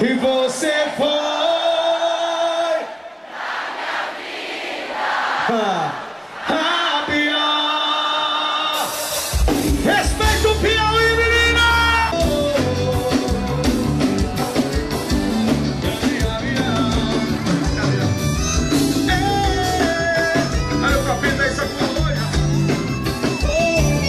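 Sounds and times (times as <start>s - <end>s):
band playing: 8.2s - 24.0s
bass line: 9.8s - 24.0s
person singing: 9.9s - 14.3s, 15.7s - 18.3s, 19.0s - 22.4s.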